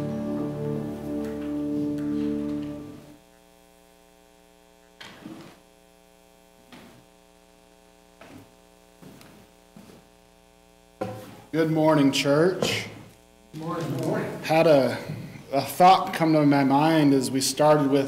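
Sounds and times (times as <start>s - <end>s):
keyboard playing sustained chords: 0.0s - 3.2s
electrical mains hum: 0.0s - 18.0s
soft thumps: 11.0s - 11.5s.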